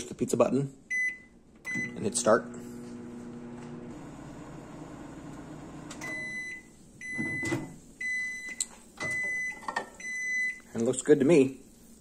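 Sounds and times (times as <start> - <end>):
microwave beeps: 0.9 - 2.2, 3.0 - 10.7
microwave humming: 0.9 - 10.4.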